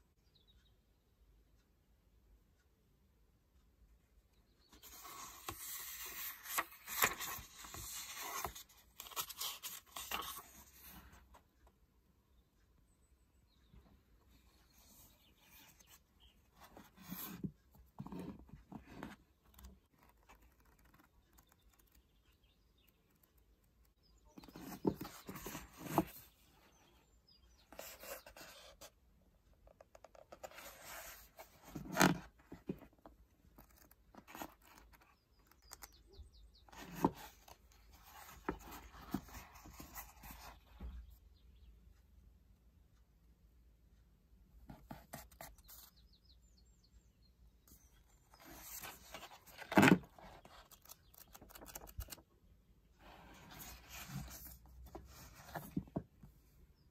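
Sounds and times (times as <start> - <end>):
book pages turning: 4.7 - 11.4, 14.8 - 22.4, 24.3 - 26.4, 27.7 - 28.9, 29.6 - 36.0, 36.7 - 40.6, 48.2 - 52.3, 53.0 - 56.0.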